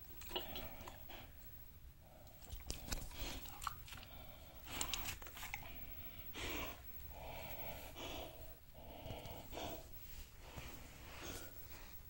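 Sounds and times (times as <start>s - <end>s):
dog breathing noisily: 5.7s - 12.0s.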